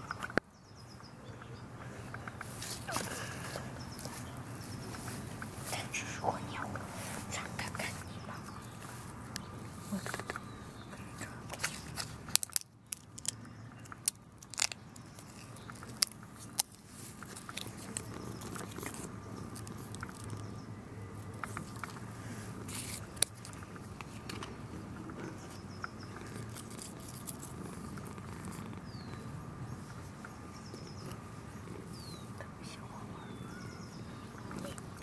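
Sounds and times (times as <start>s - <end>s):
dry leaf crackling: 2.2s - 30.0s.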